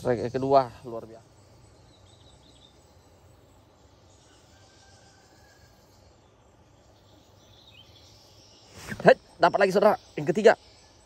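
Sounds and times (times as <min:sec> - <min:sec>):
faint insect chirring: 0:00.0 - 0:11.0.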